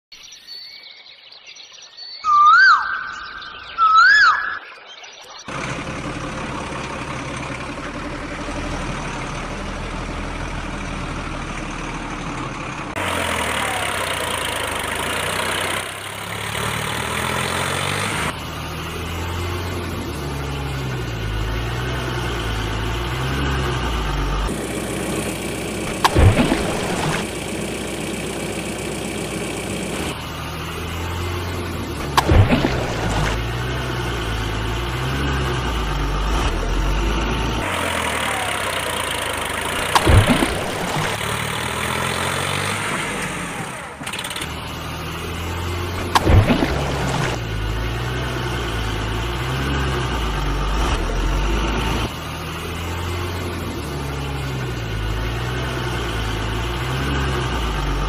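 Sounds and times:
vehicle engine idling and running: 5.5 - 58.0
short loud falling sounds: 39.7 - 42.0.

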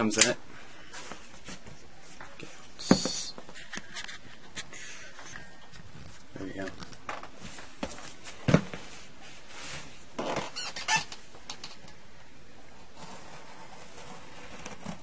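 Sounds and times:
knife scraping through cardboard: 12.9 - 15.0.

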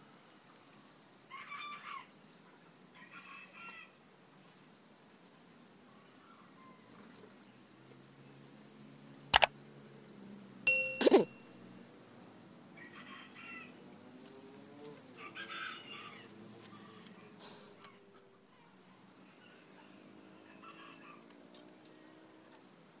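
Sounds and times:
birds chirping: 0.0 - 23.0
sharp metallic click: 9.3 - 9.5
metal wire ringing clink: 10.7 - 11.5.

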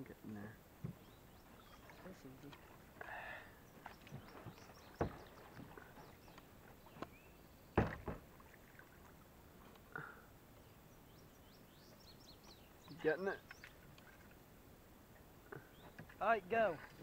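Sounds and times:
knocks and thumps on a boat: 0.8 - 1.1, 3.8 - 7.2, 7.8 - 8.5.

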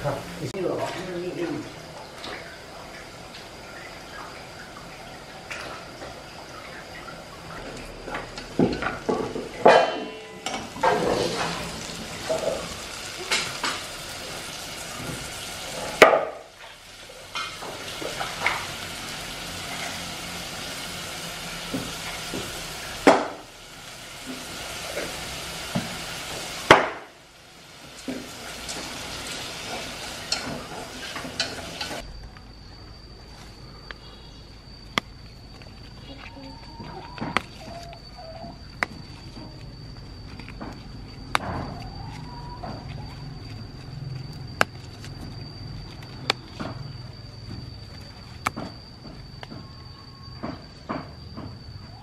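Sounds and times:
food sizzling in a pot: 0.0 - 32.1
thin steady high tone: 0.0 - 52.0.

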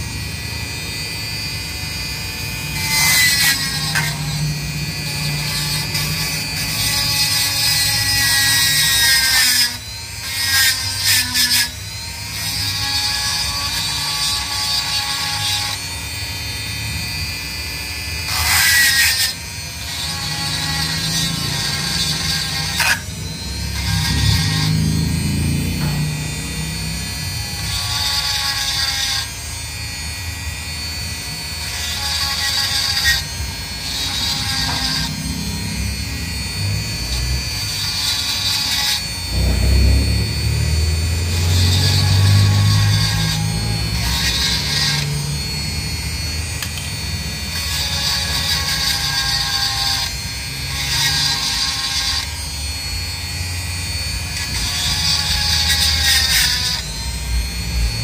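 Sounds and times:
bit grinding steel: 0.0 - 58.0
rotary tool whining: 0.0 - 58.0.

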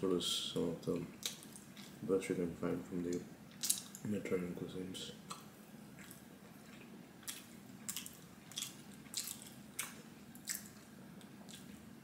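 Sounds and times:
person chewing quietly: 0.8 - 2.0, 3.1 - 4.2, 5.2 - 12.0.

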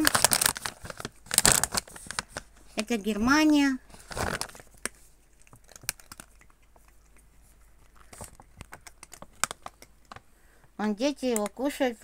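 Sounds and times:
plastic bag crinkling: 0.0 - 6.9, 7.8 - 10.2
faint clicks and crackles: 3.4 - 11.6.

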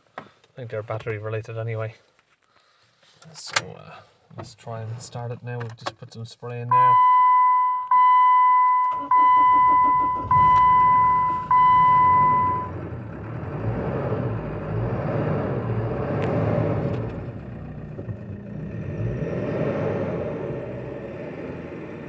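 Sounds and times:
dashboard warning chime: 6.7 - 12.8
diesel engine cranking and idling: 7.9 - 22.0.

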